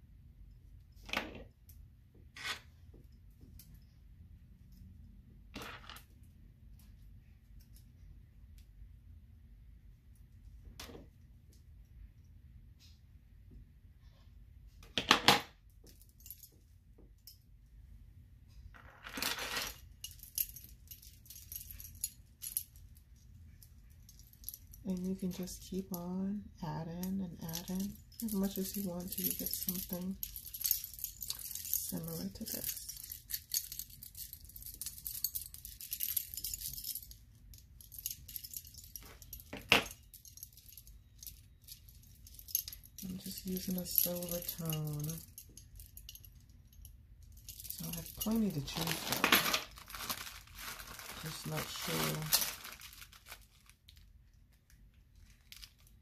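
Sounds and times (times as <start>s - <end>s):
metal charms and beads jingling: 19.3s - 54.0s, 55.2s - 56.0s.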